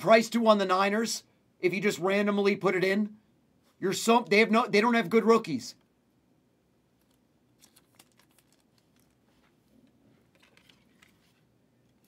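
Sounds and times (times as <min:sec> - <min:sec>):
card clicking and rustling: 0:07.0 - 0:09.6, 0:10.2 - 0:12.0.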